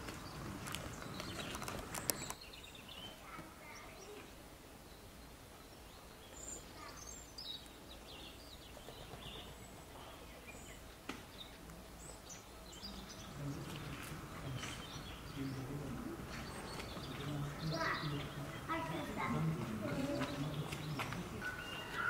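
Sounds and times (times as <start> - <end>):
faint chirps: 0.0 - 22.0
faint human voices: 9.2 - 22.0.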